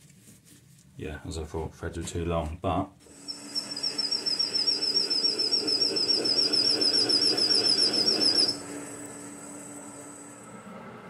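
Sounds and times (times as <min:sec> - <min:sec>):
lathe cutting squeal: 0:03.1 - 0:10.9
lathe hum: 0:03.1 - 0:11.0.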